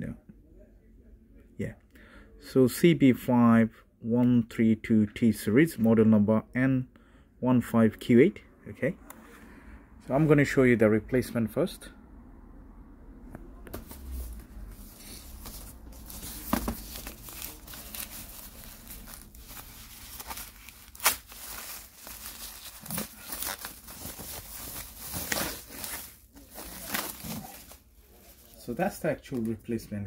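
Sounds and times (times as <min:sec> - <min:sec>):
plastic wrapping crinkling and tearing: 0:13.9 - 0:29.4.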